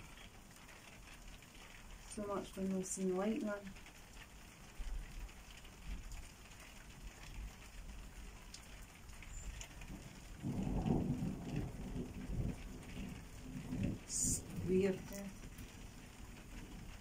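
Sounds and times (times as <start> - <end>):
steady rain falling: 0.0 - 17.0
low roll of thunder: 9.3 - 17.0.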